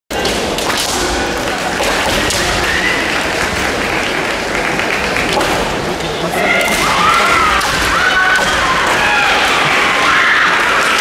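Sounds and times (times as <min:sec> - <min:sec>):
loud hall din: 0:00.1 - 0:11.0.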